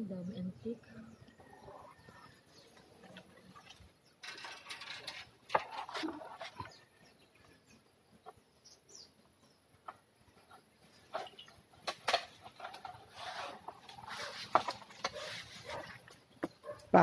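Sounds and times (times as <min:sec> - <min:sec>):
leaves and branches rustling: 0:10.4 - 0:16.8.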